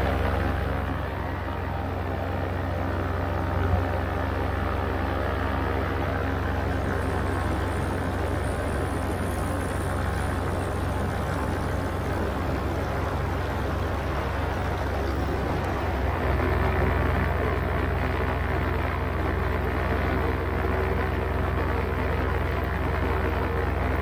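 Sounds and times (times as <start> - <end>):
paramotor engine drone: 0.0 - 24.0.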